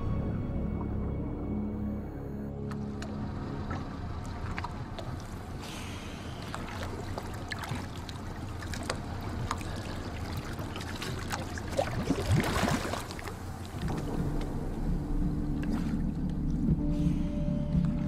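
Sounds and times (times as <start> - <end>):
low sustained music tones: 0.0 - 10.9, 12.3 - 18.0
water sloshing and splashing: 2.5 - 18.0
bubbling gurgle: 6.3 - 16.6.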